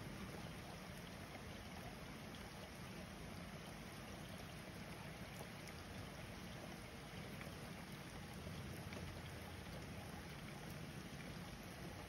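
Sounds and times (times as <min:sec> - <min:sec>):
rain falling on street: 0:00.0 - 0:12.0.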